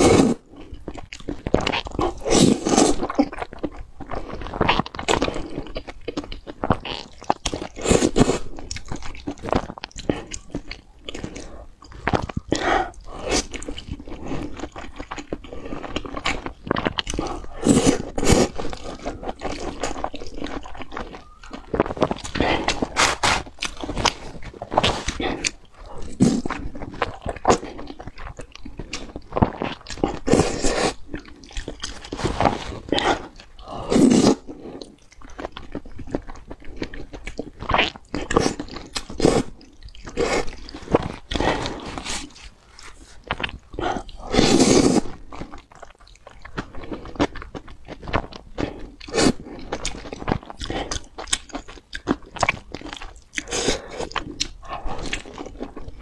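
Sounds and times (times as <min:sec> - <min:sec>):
wet chewing and lip smacks: 0:00.5 - 0:33.7, 0:34.3 - 0:56.0
noodles slurping: 0:01.4 - 0:03.4, 0:06.6 - 0:56.0.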